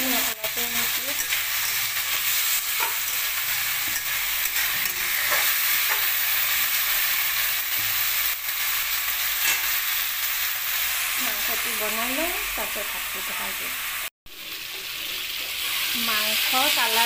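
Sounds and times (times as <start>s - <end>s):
meat sizzling in a wok: 0.0s - 17.0s
metal spoon clinking and scraping: 1.1s - 6.2s.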